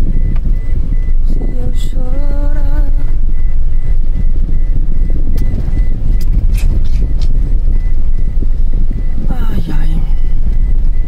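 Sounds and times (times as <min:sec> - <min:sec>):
vehicle rumble on dirt road: 0:00.0 - 0:11.0.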